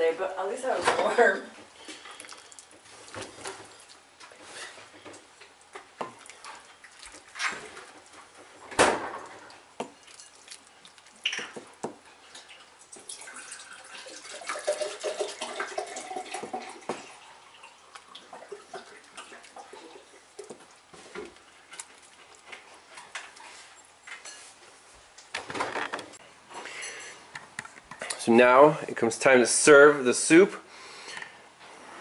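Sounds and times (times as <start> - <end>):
soup splashing and dripping: 1.8 - 4.3, 5.4 - 22.5.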